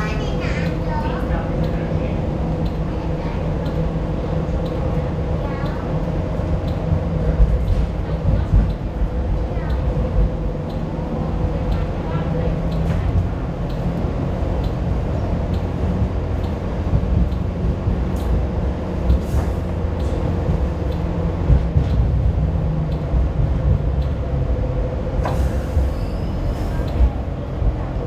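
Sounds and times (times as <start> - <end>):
train rumble: 0.0 - 28.0
wheels clicking on rails: 0.0 - 28.0
high squeak: 25.6 - 26.9.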